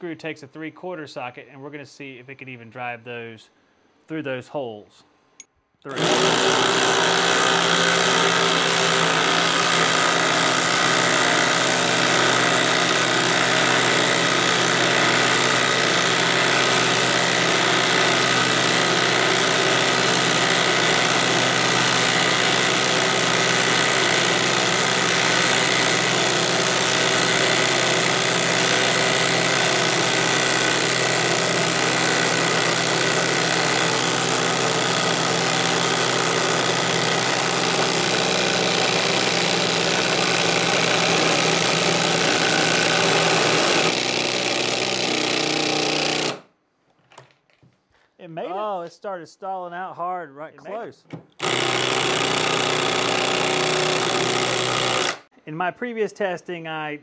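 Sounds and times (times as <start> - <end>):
impact driver hammering screw into wood: 5.9 - 46.5, 51.3 - 55.3.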